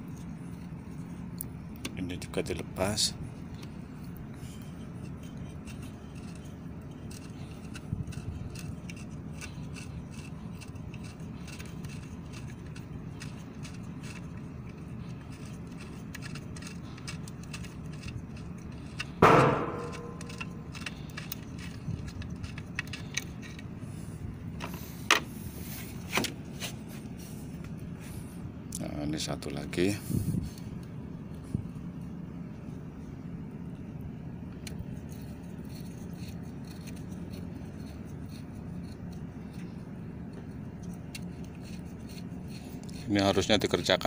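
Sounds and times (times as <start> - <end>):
metallic clicks and scrapes: 3.5 - 28.0, 34.5 - 44.0
metal clank ringing: 19.2 - 20.6
small knocks: 19.2 - 21.3.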